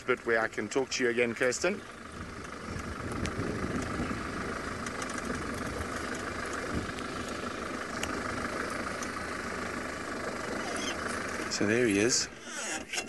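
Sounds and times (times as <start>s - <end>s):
vehicle engine driving over grass: 0.0s - 13.0s
sharp clicks: 4.8s - 8.2s.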